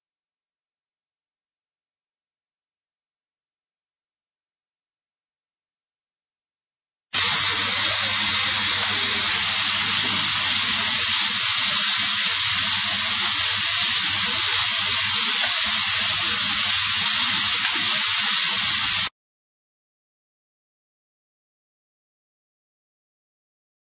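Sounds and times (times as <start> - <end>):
steady hiss: 7.2 - 19.1.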